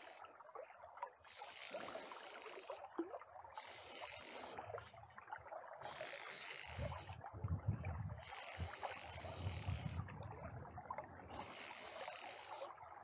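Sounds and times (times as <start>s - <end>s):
fishing reel ratchet whirring: 0.0s - 0.2s, 1.2s - 2.9s, 3.5s - 5.0s, 5.8s - 10.2s, 11.2s - 12.8s.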